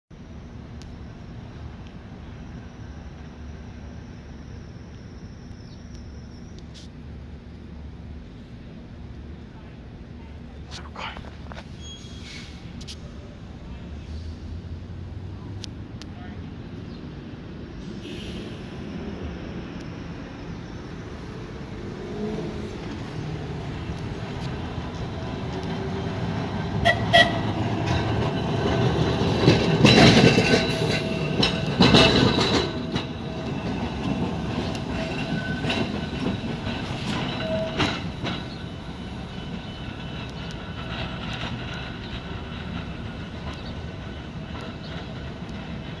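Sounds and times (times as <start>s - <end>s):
tram wheels rumbling on rails: 11.6s - 46.0s.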